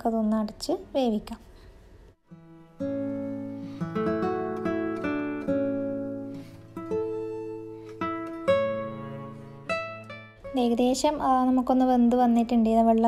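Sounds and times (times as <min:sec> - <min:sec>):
acoustic guitar chords: 0:02.2 - 0:10.8.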